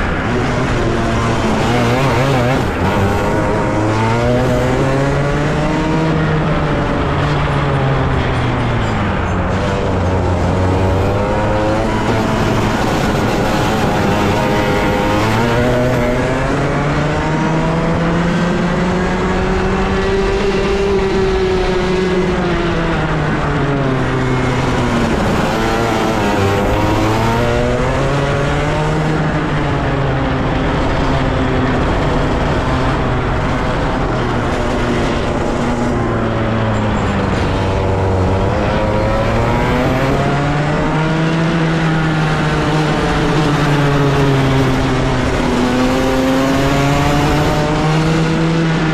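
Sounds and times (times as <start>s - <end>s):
racing kart engine revving: 0.0s - 48.9s.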